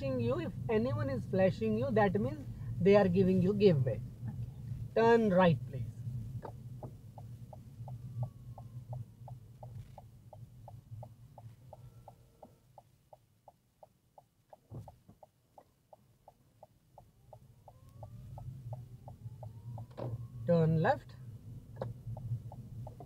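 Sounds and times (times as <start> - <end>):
engine and road hum: 0.0 - 23.0
car turn indicator ticking: 6.4 - 20.4, 21.6 - 23.0
soft thump: 14.7 - 15.0.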